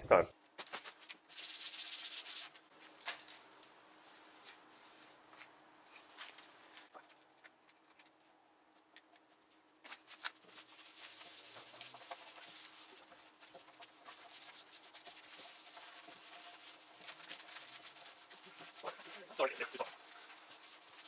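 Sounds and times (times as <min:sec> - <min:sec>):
small scuffs and taps: 0:08.9 - 0:21.0
hands rubbing wood: 0:09.9 - 0:21.0.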